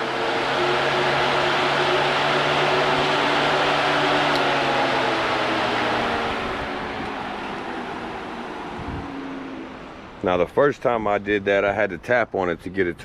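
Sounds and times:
electric motor hum: 0.0 - 10.2
fan air rushing: 0.0 - 12.8.

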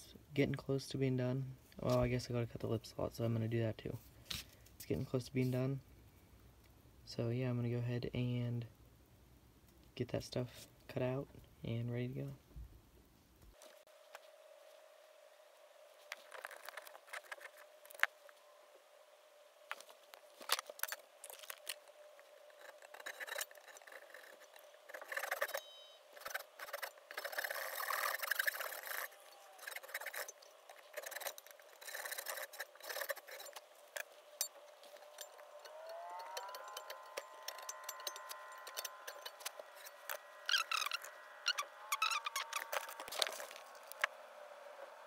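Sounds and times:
hand saw cutting wood: 22.4 - 44.1.

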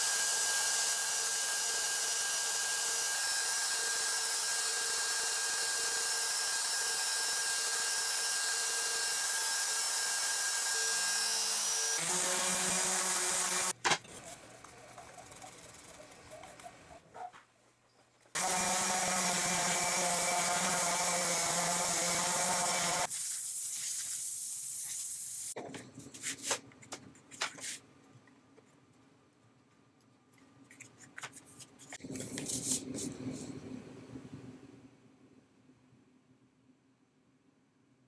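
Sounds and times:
orbital sander sanding wood: 0.1 - 13.8, 18.4 - 23.1.

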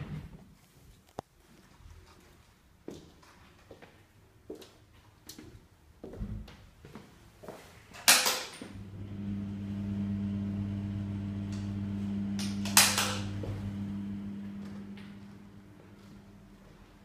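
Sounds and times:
extractor fan humming: 8.7 - 17.0.

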